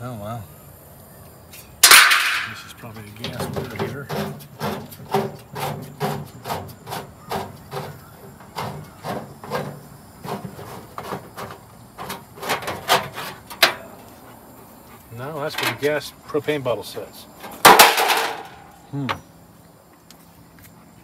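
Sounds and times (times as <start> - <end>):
noisy scuffing strokes: 3.0 - 13.4.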